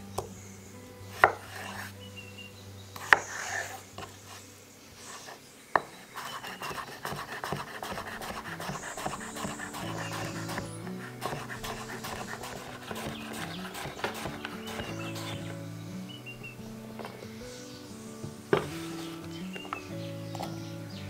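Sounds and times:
fast knife chopping: 0:06.2 - 0:15.5.

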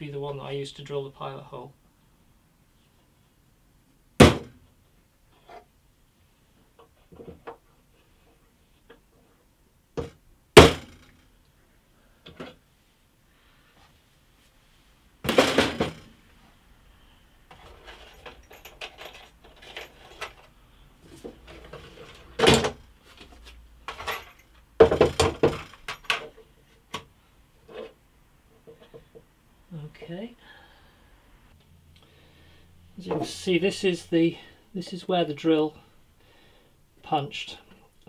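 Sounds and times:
clattering knocks of wood and metal: 0:04.2 - 0:04.6, 0:15.2 - 0:16.2, 0:21.2 - 0:26.4.

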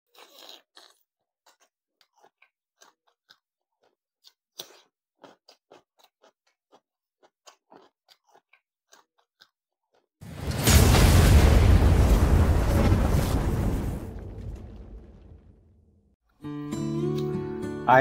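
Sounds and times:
man chewing food: 0:00.0 - 0:10.2.

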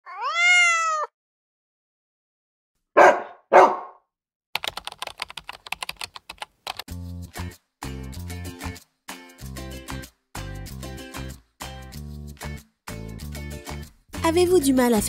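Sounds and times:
dog yelping: 0:00.1 - 0:01.1
dog barking: 0:03.0 - 0:04.0
keyboard typing clicks: 0:04.6 - 0:06.9.

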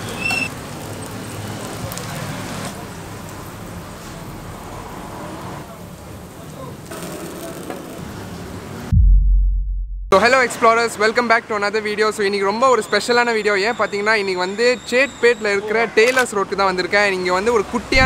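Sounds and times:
food sizzling on a griddle: 0:00.1 - 0:04.4.

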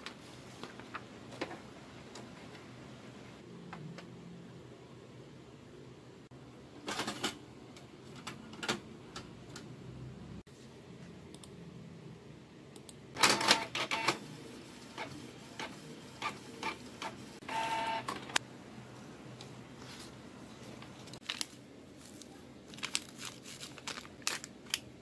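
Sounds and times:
inkjet printer clicking and clunking: 0:13.2 - 0:14.2
printer feed motor whine: 0:13.2 - 0:18.4.

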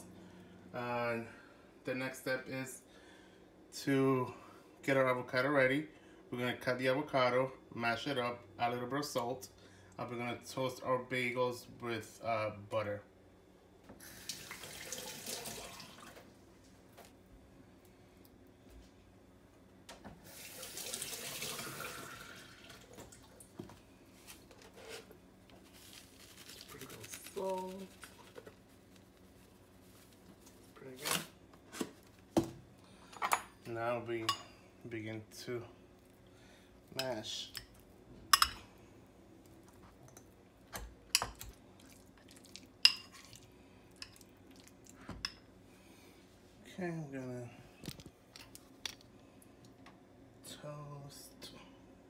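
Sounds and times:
faucet running into metal sink: 0:14.2 - 0:16.2, 0:20.3 - 0:23.2.

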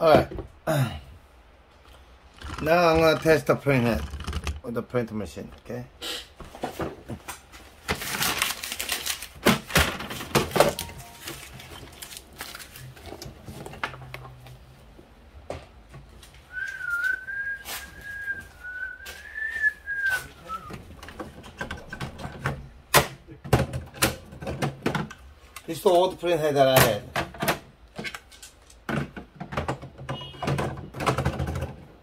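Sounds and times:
person whistling a tune: 0:16.5 - 0:20.7.

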